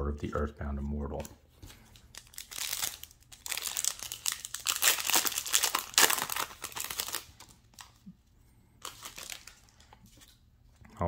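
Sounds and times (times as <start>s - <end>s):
foil wrapper crinkling: 1.7s - 8.1s, 8.8s - 10.3s.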